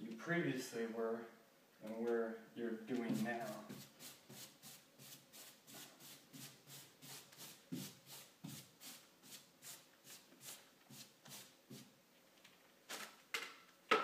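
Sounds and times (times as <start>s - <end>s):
paintbrush swishing on wall: 2.9s - 11.9s.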